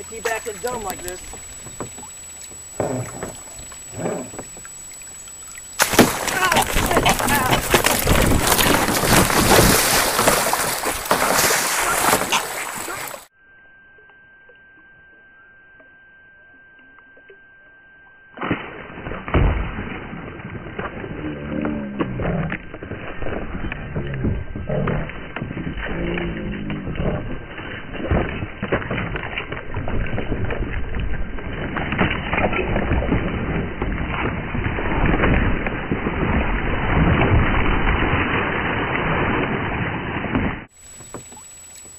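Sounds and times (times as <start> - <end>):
faint steady high tone: 0.0 - 8.7, 11.8 - 19.4
water splashing and thrashing: 0.0 - 13.3, 18.1 - 41.9
goose beating wings: 5.8 - 13.2.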